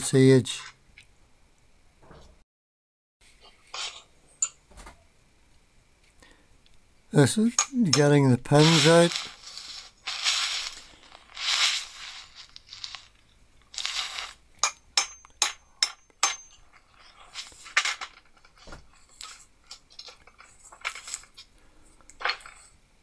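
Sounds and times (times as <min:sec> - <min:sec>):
steel parts scraping and clinking: 0:07.4 - 0:22.8
hammer tapping metal punch: 0:14.6 - 0:16.6.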